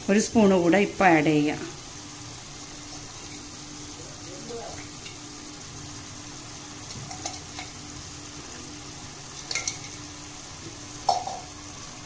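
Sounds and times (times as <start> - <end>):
food sizzling in a pan: 0.0 - 12.0
spoon clicking against pan: 9.4 - 10.0.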